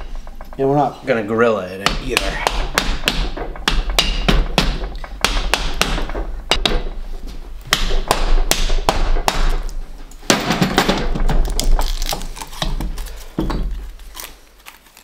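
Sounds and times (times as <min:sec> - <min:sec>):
mallet blows on metal cylinders: 0:01.8 - 0:11.2.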